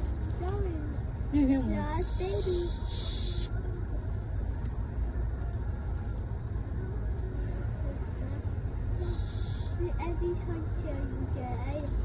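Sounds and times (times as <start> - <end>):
low rumble inside a car: 0.0 - 12.0.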